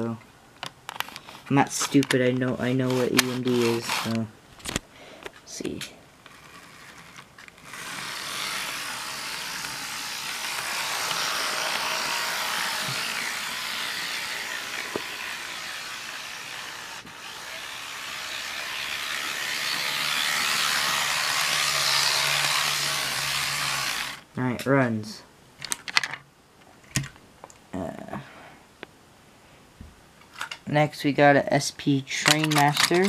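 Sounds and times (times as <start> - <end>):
model train motor whirring: 1.0 - 4.3, 6.2 - 24.3.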